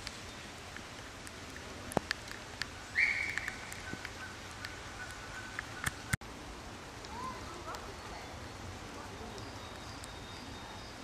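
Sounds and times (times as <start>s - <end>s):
light rain hiss: 0.0s - 11.0s
thin faint whistle: 2.9s - 3.6s
bird call: 2.9s - 6.2s.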